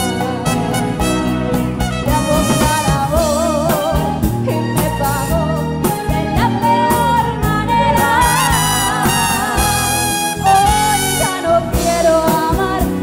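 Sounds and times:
steady drum beat: 0:00.0 - 0:05.0
live band playing: 0:00.0 - 0:13.0
woman singing with vibrato: 0:02.0 - 0:13.0.

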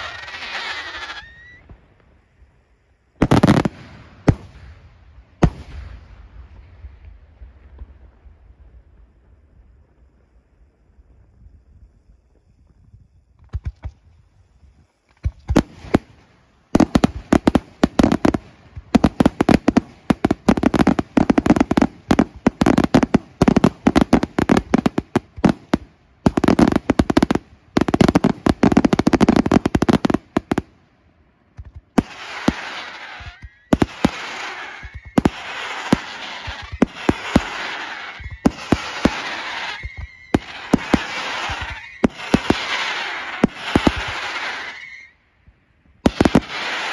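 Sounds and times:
fireworks bangs and crackling: 0:00.0 - 0:02.4, 0:03.1 - 0:12.6, 0:13.3 - 0:46.9
hissing crackle of fireworks: 0:00.0 - 0:46.9.

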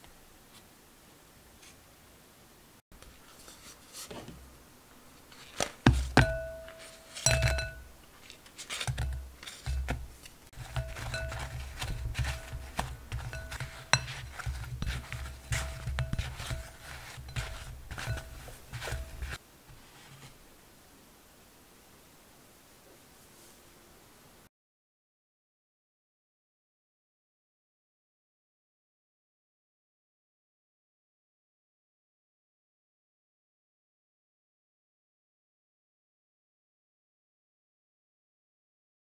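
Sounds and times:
doughnuts tumbling thumps: 0:05.3 - 0:08.0, 0:08.7 - 0:19.8
utensil clinking against glass bowl: 0:06.1 - 0:07.9, 0:10.6 - 0:19.4.

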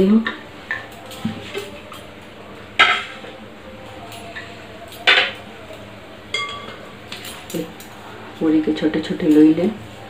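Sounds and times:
dishes clanking: 0:02.8 - 0:03.3, 0:04.0 - 0:05.5, 0:06.3 - 0:08.0
glass clinking: 0:06.3 - 0:07.9.

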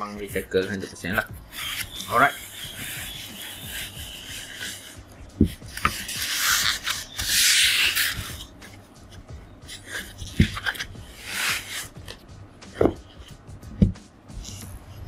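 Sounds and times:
foam rubbing against fabric sleeve: 0:00.0 - 0:08.6, 0:09.7 - 0:12.0
soft thumps: 0:12.7 - 0:14.1.

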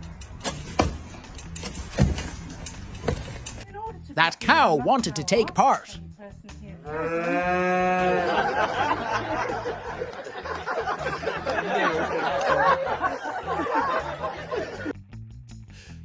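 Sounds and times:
cow mooing: 0:06.8 - 0:08.3
crowd laughing and chattering: 0:07.9 - 0:15.0.

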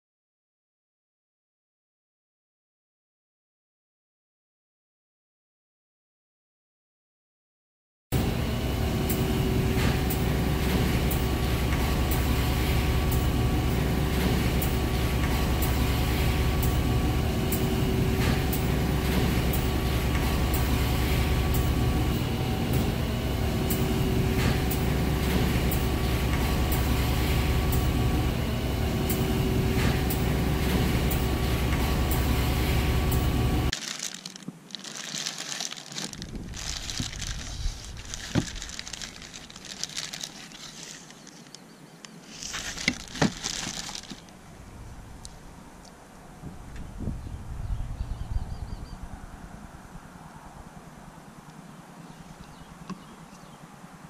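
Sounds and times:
machine humming: 0:08.2 - 0:33.8.

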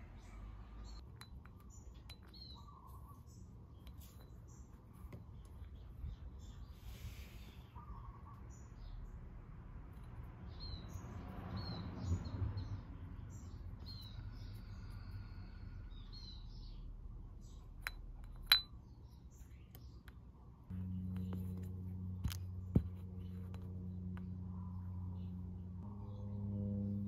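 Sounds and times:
small birds chirping: 0:00.0 - 0:27.0.

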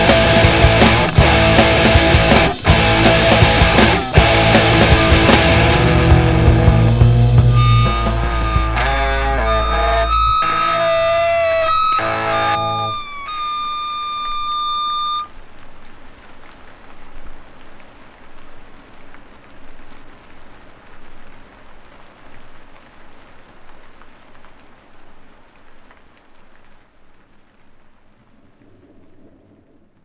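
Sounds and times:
held high guitar note: 0:00.0 - 0:15.3
hiss of noise: 0:00.0 - 0:30.0.

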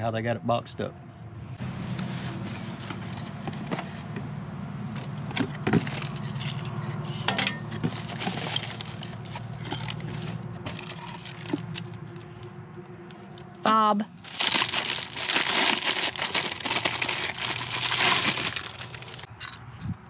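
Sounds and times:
metal hardware rattling in bag: 0:05.6 - 0:12.0, 0:14.3 - 0:19.6.

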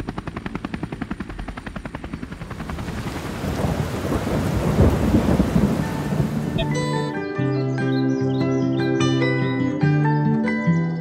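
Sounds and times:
helicopter rotor chopping: 0:00.0 - 0:07.2.

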